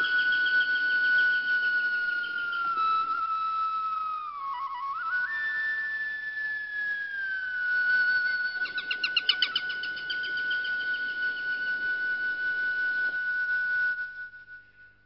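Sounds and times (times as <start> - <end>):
flute fluttering trill: 0.0 - 15.0
flute playing high note: 0.0 - 15.0.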